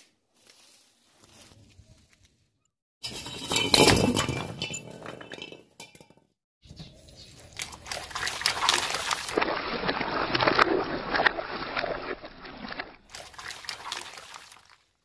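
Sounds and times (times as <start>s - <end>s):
liquid splashing on concrete: 7.4s - 15.0s.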